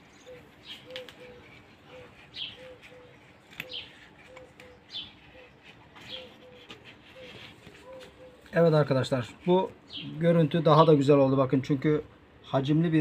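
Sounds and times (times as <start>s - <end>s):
dove cooing: 0.0s - 8.6s
small birds chirping: 0.0s - 11.7s.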